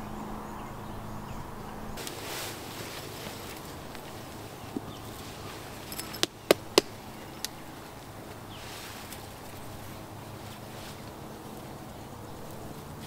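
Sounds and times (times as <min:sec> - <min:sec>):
evening bush ambience: 0:00.0 - 0:13.0
sharp clicks of hammock: 0:02.0 - 0:09.6.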